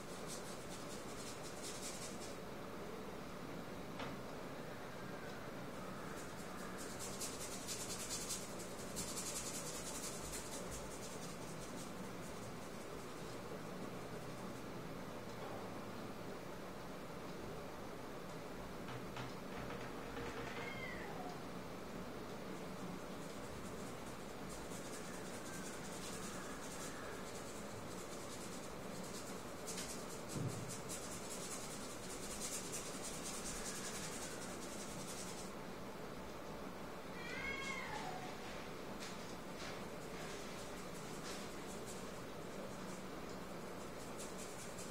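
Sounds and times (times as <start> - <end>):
paintbrush scrubbing paint: 0.0 - 2.4, 6.2 - 13.4, 23.0 - 35.5, 39.6 - 44.9.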